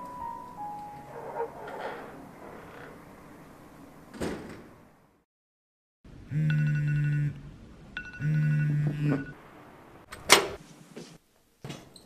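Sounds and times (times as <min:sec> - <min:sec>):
mobile phone buzzing ring: 0:06.3 - 0:07.4, 0:08.0 - 0:09.4.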